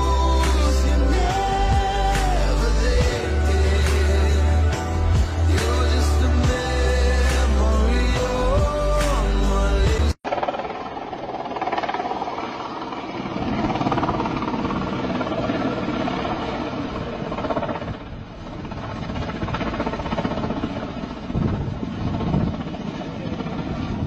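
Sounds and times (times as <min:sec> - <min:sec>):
distant helicopter flying: 0:09.8 - 0:24.0.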